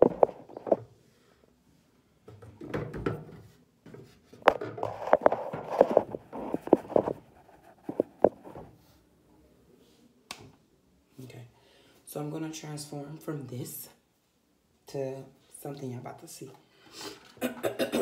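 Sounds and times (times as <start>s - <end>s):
clicks and knocks on phone: 0.0s - 0.8s
phone handling rubbing: 0.0s - 0.8s, 4.4s - 8.6s.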